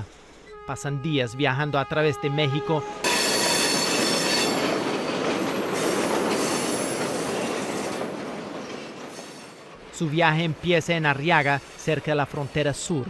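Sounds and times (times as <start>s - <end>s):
freight train wagons on track: 0.0s - 13.0s
wheels squealing on rails: 3.0s - 9.6s, 11.2s - 13.0s.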